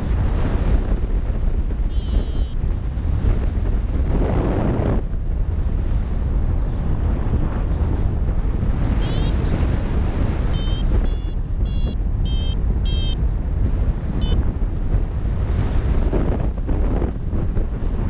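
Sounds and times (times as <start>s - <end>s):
wind buffeting microphone: 0.0s - 18.0s
variometer high beeps: 1.9s - 2.6s, 9.0s - 9.5s, 10.5s - 13.2s, 14.2s - 14.4s.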